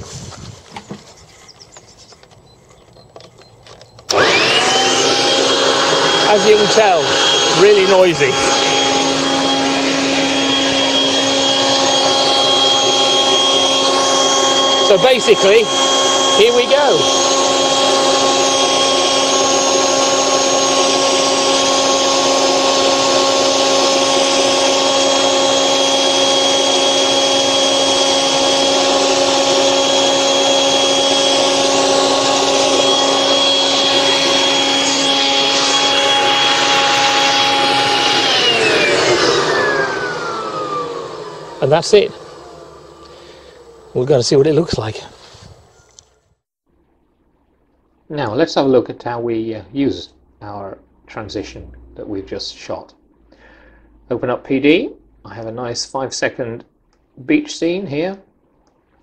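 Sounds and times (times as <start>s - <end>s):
garden blower whining: 0.0s - 46.4s.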